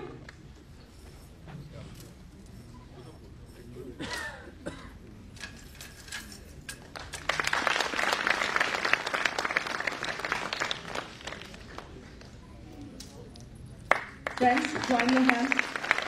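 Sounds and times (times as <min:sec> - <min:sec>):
audience applauding: 0:07.0 - 0:12.0, 0:13.9 - 0:16.0.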